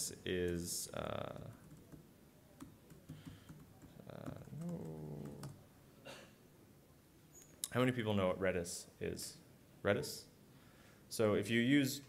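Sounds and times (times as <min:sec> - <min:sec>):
laptop keyboard typing: 0:01.4 - 0:02.0, 0:02.6 - 0:05.6
low voice murmur: 0:04.1 - 0:05.6.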